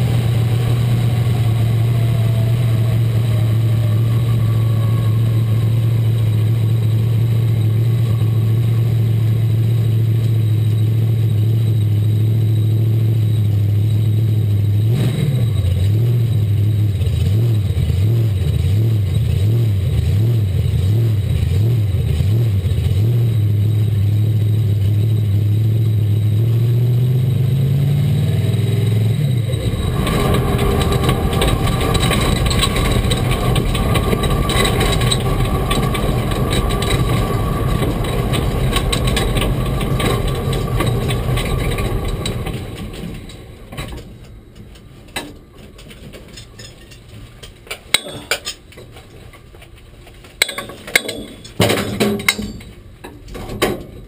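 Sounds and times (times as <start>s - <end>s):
car engine running: 0.0s - 54.0s
rushing noise with steady whine: 29.1s - 47.0s
clicks and knocks: 29.7s - 54.0s.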